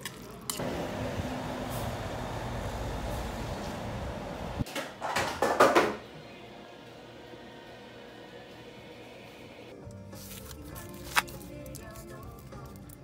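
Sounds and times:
low rumble of traffic: 0:00.6 - 0:04.6.

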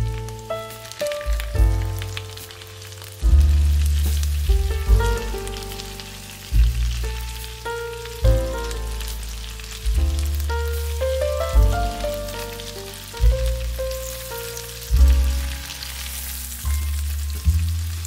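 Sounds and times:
background music with deep bass: 0:00.0 - 0:18.0
food sizzling in a pan: 0:00.0 - 0:18.0.

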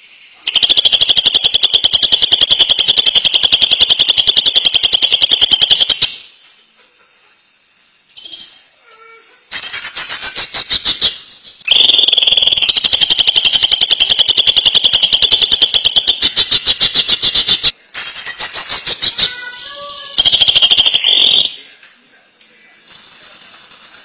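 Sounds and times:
bird singing rapid high notes: 0:09.5 - 0:21.6.

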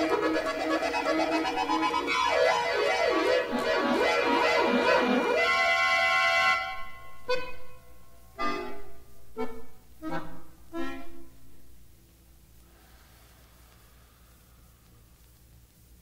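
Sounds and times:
accordion chords: 0:00.0 - 0:12.0.

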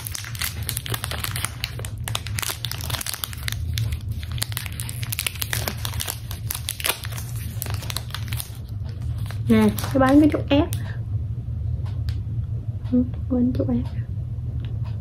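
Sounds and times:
plastic wrapper crinkling: 0:00.0 - 0:10.8
steady low hum: 0:00.0 - 0:15.0.

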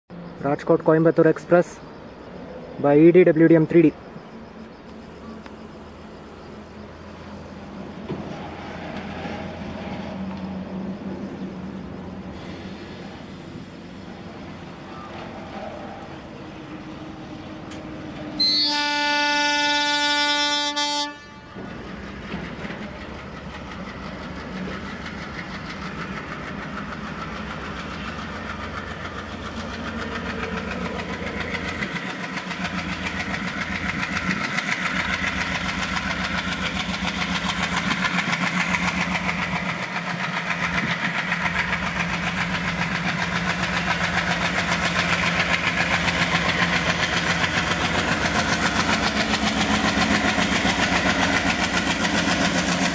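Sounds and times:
diesel locomotive engine rumbling: 0:00.1 - 0:52.9
locomotive horn blast: 0:18.4 - 0:21.7
wheels clattering on rails: 0:21.5 - 0:52.9.

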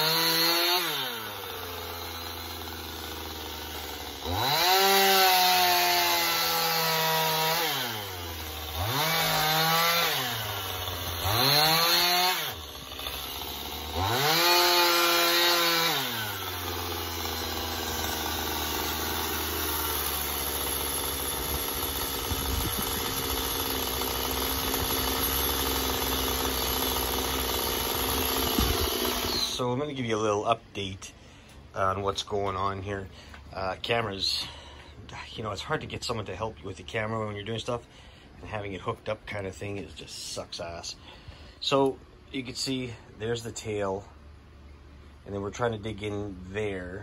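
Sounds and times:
chainsaw cutting log: 0:00.0 - 0:29.8
chainsaw idling: 0:00.0 - 0:29.8.

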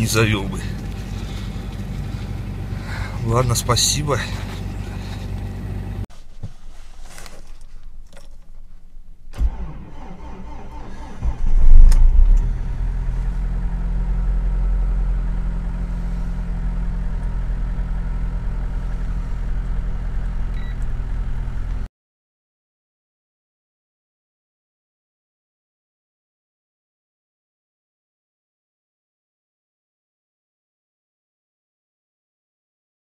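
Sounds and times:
car engine fast idle: 0:00.5 - 0:06.0, 0:09.3 - 0:11.5, 0:12.2 - 0:21.7
starter motor cranking: 0:09.3 - 0:12.6.

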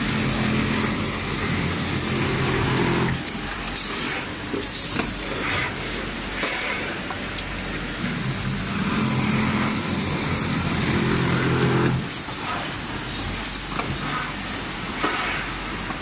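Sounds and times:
sewing machine motor hum: 0:00.0 - 0:03.4, 0:08.0 - 0:12.1.

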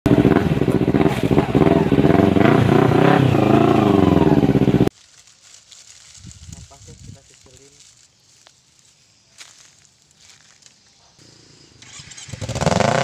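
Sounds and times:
motorcycle engine revving: 0:00.0 - 0:04.9, 0:11.2 - 0:13.0.

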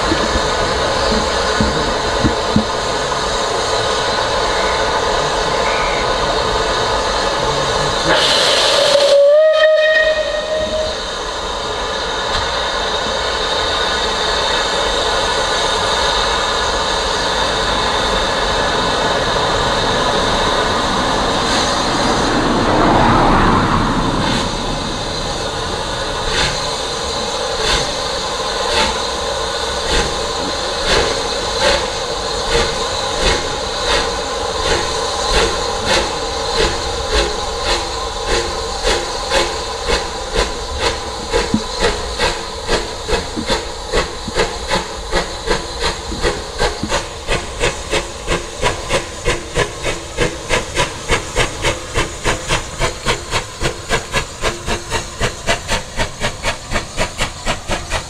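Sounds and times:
locomotive exhaust beats: 0:00.0 - 0:58.0
steam hissing: 0:00.0 - 0:58.0
steam locomotive whistle: 0:04.4 - 0:06.5, 0:08.0 - 0:11.5.

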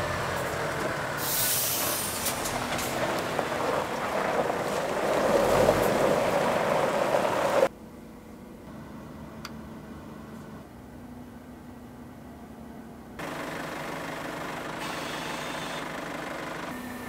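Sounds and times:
truck engine running: 0:00.0 - 0:07.7, 0:13.1 - 0:17.0
tyres crunching on gravel: 0:00.0 - 0:07.7
air hissing: 0:01.2 - 0:02.5
cab interior hum: 0:02.2 - 0:17.0.

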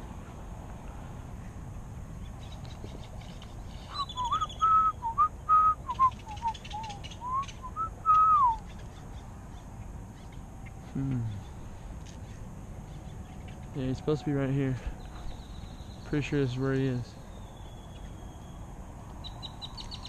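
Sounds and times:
low hum: 0:00.0 - 0:08.7
person whistling a tune: 0:04.2 - 0:08.6.

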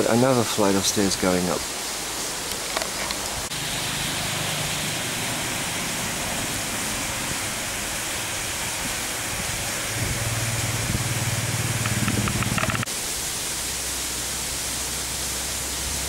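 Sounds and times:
steady outdoor hiss: 0:00.0 - 0:16.0
low droning hum: 0:03.5 - 0:12.9.

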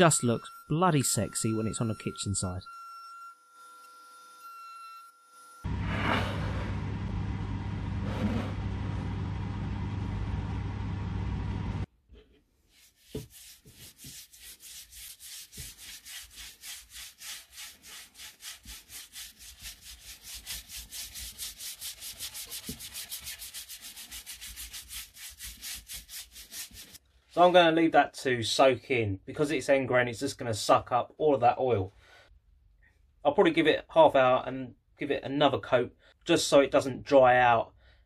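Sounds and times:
cloth rubbing on wood: 0:12.6 - 0:27.0.

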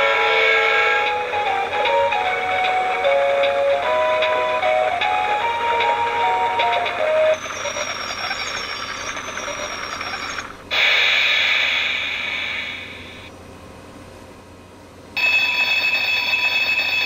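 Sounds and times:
electronic chime melody: 0:00.0 - 0:10.5
toy train motor whining: 0:00.0 - 0:13.3, 0:15.2 - 0:17.0
loud hiss: 0:10.7 - 0:13.3.

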